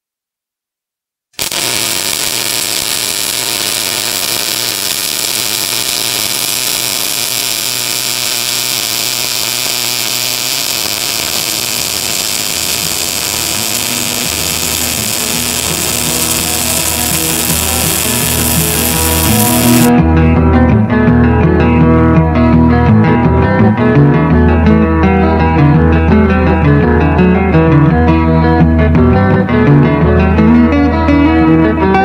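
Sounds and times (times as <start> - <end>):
welding arc hissing: 1.4 - 19.9.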